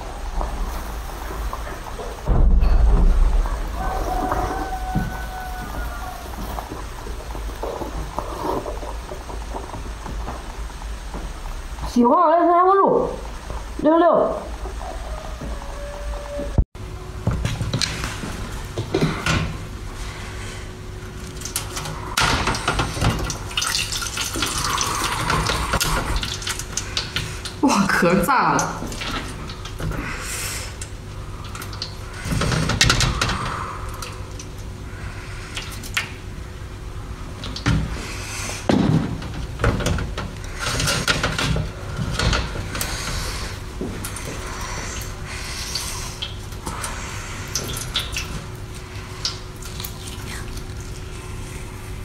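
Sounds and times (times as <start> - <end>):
water pouring and splashing: 0.0 - 11.9, 20.0 - 52.0
loud thump: 2.2 - 4.5.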